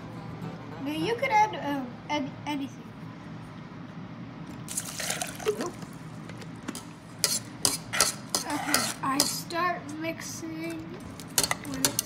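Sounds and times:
metal spoon scraping a pan: 7.2 - 9.5, 11.4 - 12.0.

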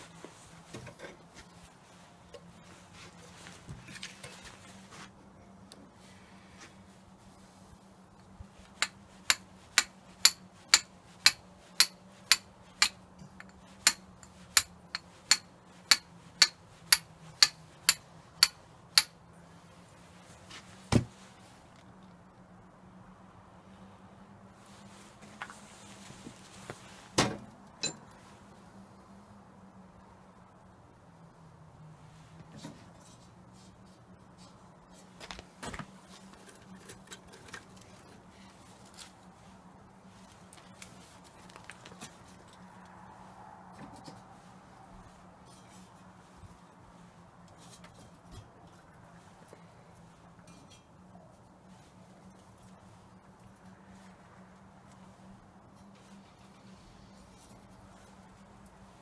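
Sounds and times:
sticks knocking against metal: 8.8 - 19.1.

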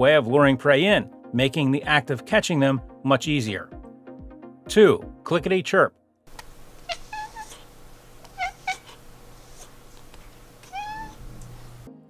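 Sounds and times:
cat chirping: 6.4 - 11.9.

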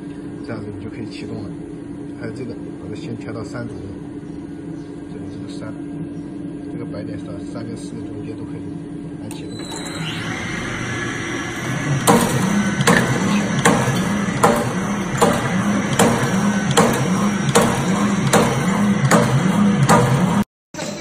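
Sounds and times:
machine motor drone: 8.8 - 21.0
cutter clacking: 9.3 - 20.4.

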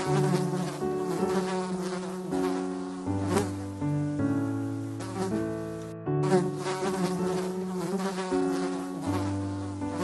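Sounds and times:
honeybee buzzing: 0.0 - 3.9, 4.8 - 10.0.

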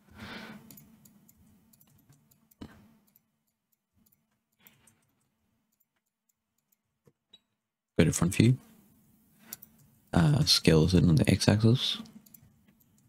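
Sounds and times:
mouse and keyboard clicks: 0.6 - 3.2, 9.5 - 9.9.

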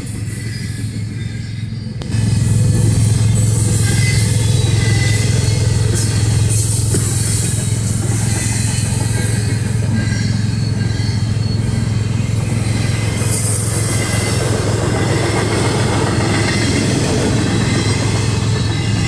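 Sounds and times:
freight train wheels rumbling on rail: 0.0 - 19.0.

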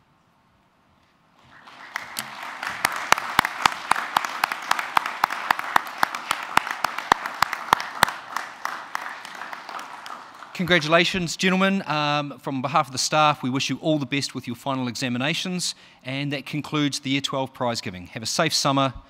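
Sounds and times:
sharp close claps: 1.4 - 11.0
audience applause: 1.4 - 11.3.

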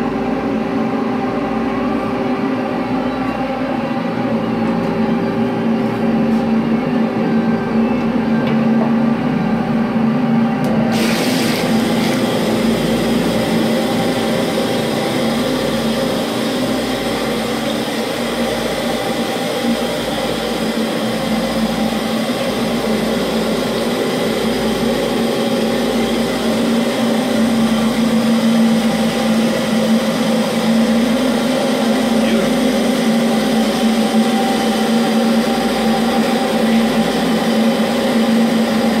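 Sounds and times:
electric machinery humming: 0.0 - 39.0
hiss: 10.9 - 16.3.

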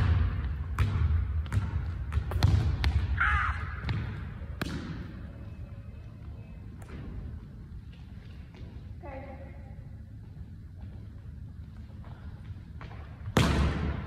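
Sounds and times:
basketballs bouncing on wooden floor: 0.0 - 5.0.

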